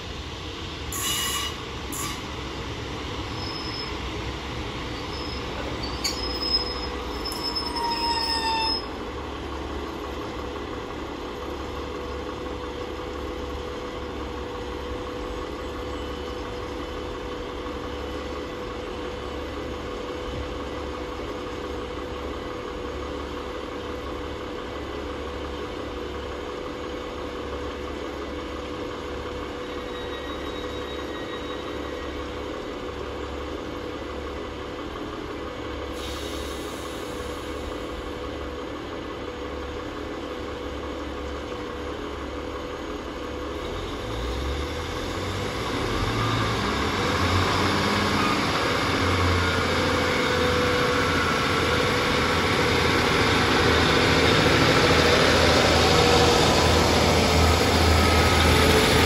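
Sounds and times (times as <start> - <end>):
train brakes squealing: 0.9 - 2.4, 3.2 - 4.2, 4.9 - 9.0, 29.6 - 32.4, 35.9 - 38.0, 43.5 - 45.0
diesel engines idling: 1.6 - 59.0.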